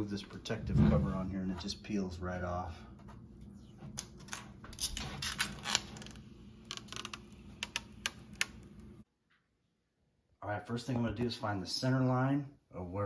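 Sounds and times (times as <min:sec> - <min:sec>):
plastic film peeling off metal: 0:04.0 - 0:08.9.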